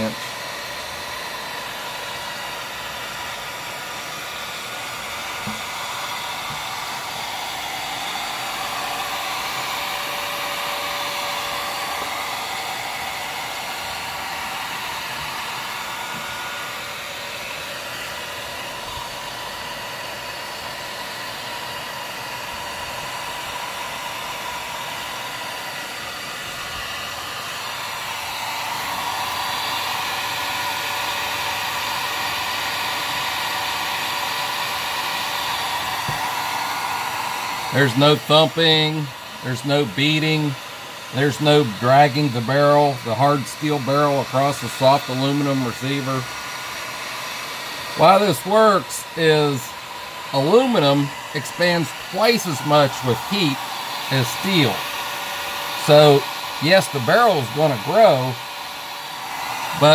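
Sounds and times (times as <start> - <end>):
heat gun blowing hot air: 0.0 - 59.9.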